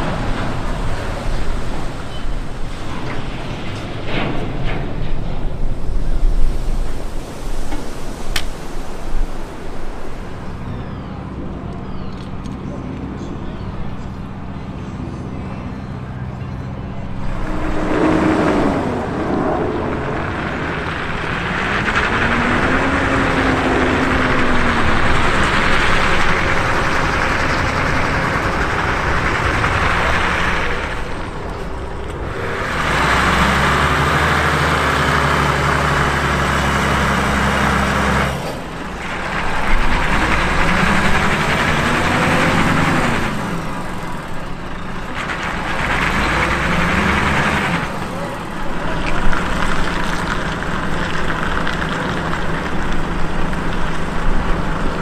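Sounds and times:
steady rushing noise: 0:00.0 - 0:11.6, 0:13.9 - 0:55.0
truck diesel engine under load: 0:00.0 - 0:55.0.

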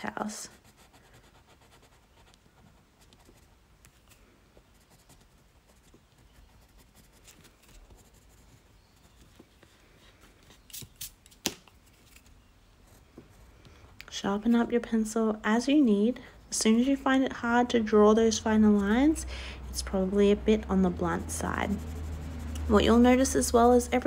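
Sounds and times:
coloured pencil scratching on paper: 0:00.2 - 0:10.6, 0:18.3 - 0:24.0
sharp pencil ticks: 0:21.1 - 0:24.0.

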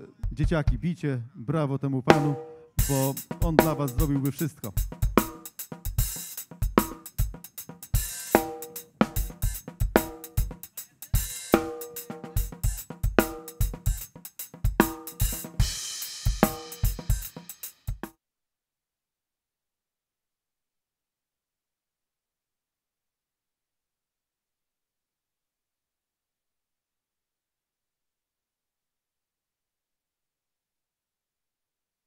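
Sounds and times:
drum-driven music: 0:02.1 - 0:18.1.

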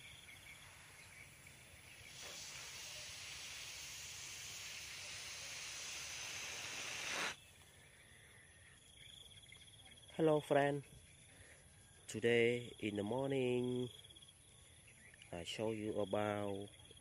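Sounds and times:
air hissing from balloon: 0:00.0 - 0:07.4.

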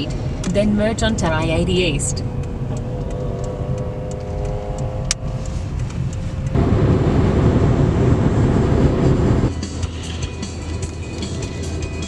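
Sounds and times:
tyre and wind rumble: 0:00.0 - 0:09.5
car cabin low hum: 0:00.0 - 0:11.7.

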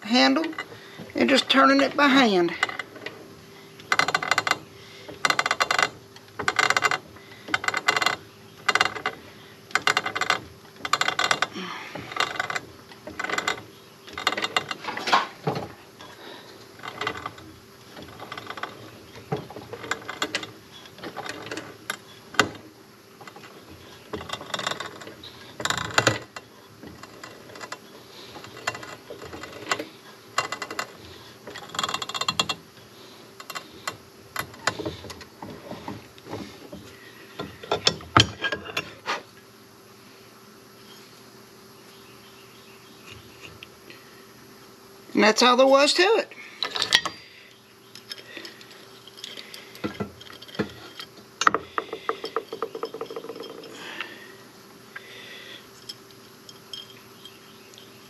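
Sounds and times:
drill bit clicking and scraping: 0:23.2 - 0:32.6.

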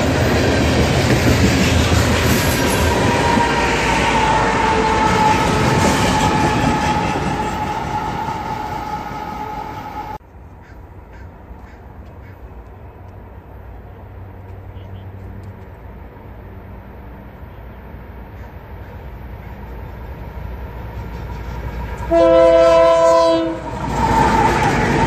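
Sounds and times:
freight train rumbling past: 0:00.0 - 0:25.0
outdoor background: 0:00.0 - 0:25.0
high wheel squeal: 0:02.7 - 0:10.2.

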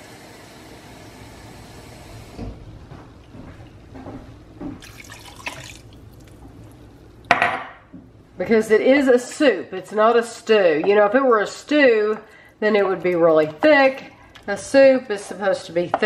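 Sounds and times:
water pouring into soup: 0:04.8 - 0:07.3.

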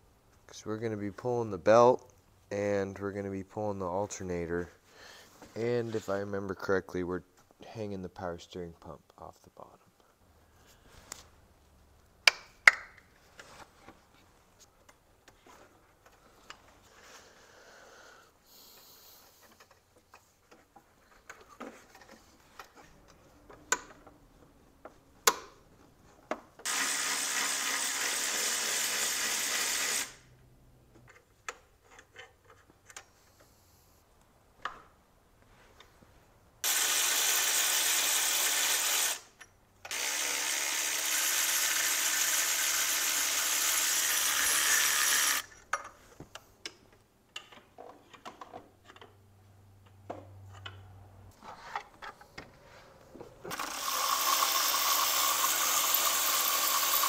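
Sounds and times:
clicks and knocks of hand work: 0:12.2 - 0:16.8, 0:45.5 - 0:49.2
cordless ratchet running: 0:36.6 - 0:39.2, 0:39.9 - 0:45.5, 0:53.5 - 0:57.0.

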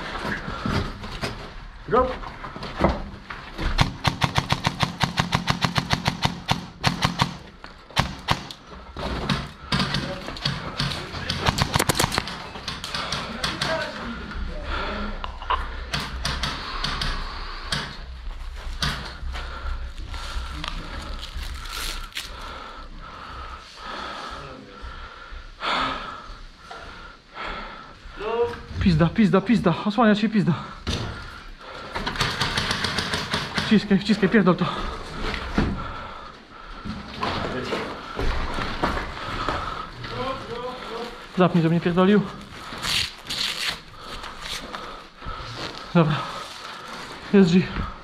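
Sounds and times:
airsoft gun firing: 0:03.8 - 0:08.6, 0:10.8 - 0:12.3, 0:32.2 - 0:33.6.

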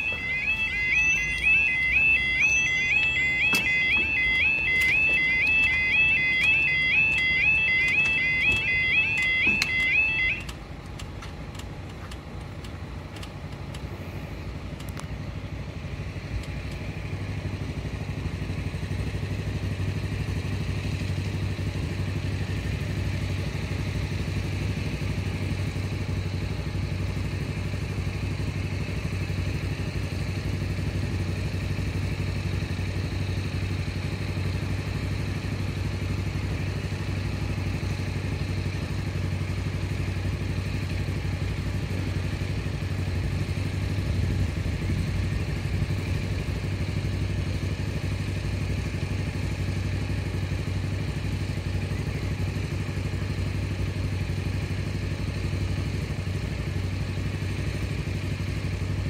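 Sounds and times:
low engine hum: 0:00.0 - 0:59.0.

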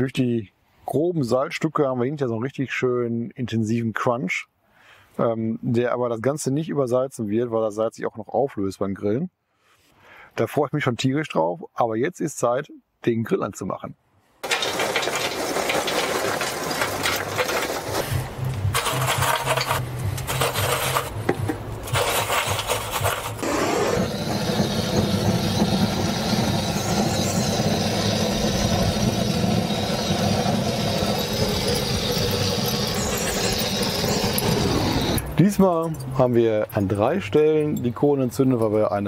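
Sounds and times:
gas torch flame hissing: 0:21.8 - 0:35.2.

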